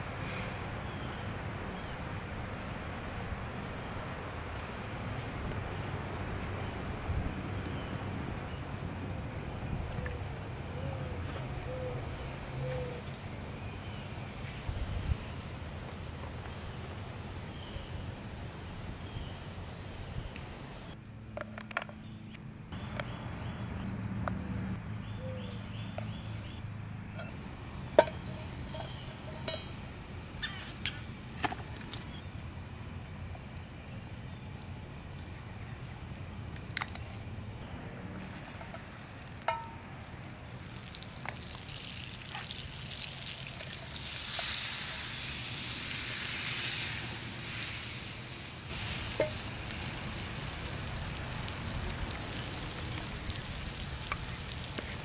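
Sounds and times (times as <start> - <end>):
butter sizzling in a frying pan: 38.2 - 55.0.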